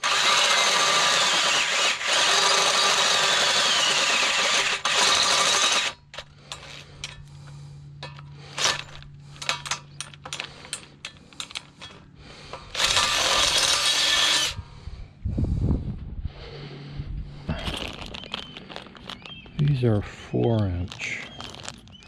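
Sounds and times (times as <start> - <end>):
power drill running: 0.0 - 6.8, 8.5 - 9.0, 12.6 - 14.6
metal hardware clinking: 6.1 - 7.3, 8.0 - 13.1.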